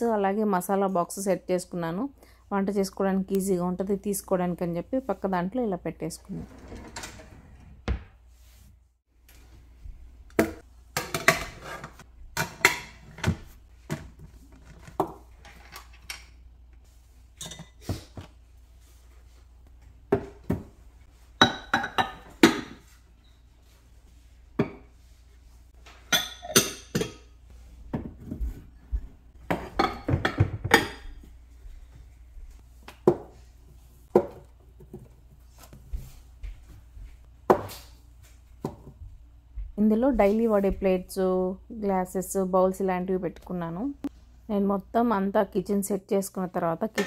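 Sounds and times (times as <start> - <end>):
dishes clinking and knocking: 10.4 - 14.1, 17.4 - 18.0, 21.4 - 22.8, 25.9 - 28.4, 29.4 - 31.3.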